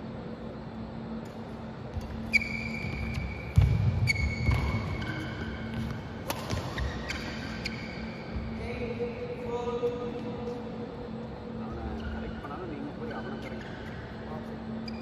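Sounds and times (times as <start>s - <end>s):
shoes squealing: 2.0s - 8.6s, 14.7s - 15.0s
footsteps thudding on court: 2.8s - 6.9s
racket hitting shuttlecock: 3.1s - 7.8s.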